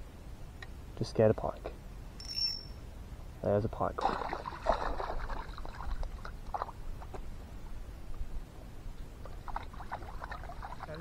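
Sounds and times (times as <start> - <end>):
dogs splashing in water: 4.0 - 6.8, 9.3 - 11.0.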